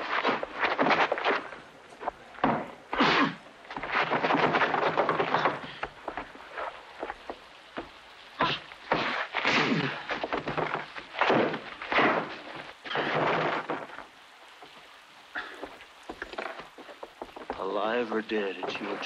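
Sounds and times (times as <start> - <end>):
scuffling: 0.0 - 14.1
body hitting wooden chairs: 9.8 - 14.0.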